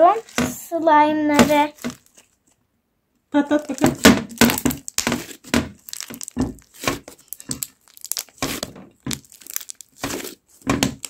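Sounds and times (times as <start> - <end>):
slime air pockets popping: 3.6 - 11.0.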